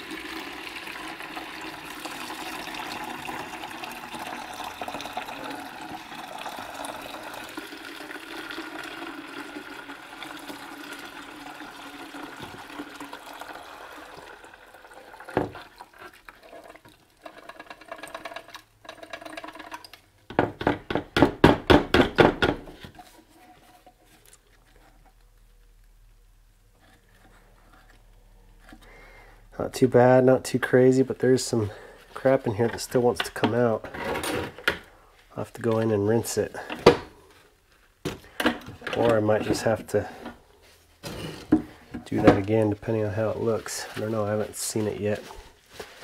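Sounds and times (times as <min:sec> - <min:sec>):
liquid pouring into plastic bucket: 0:00.0 - 0:20.0
liquid spurts and dribbles: 0:00.0 - 0:20.0.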